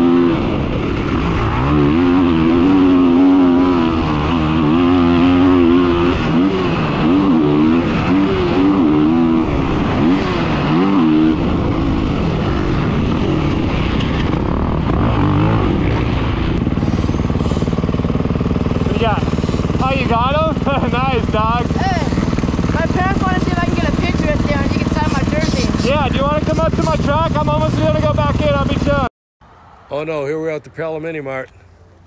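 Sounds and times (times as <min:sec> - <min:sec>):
motorcycle engine revving: 0:00.0 - 0:29.1.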